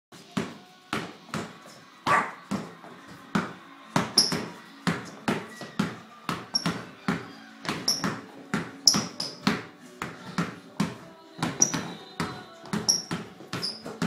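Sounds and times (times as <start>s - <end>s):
basketball bouncing on hardwood: 3.4s - 14.0s.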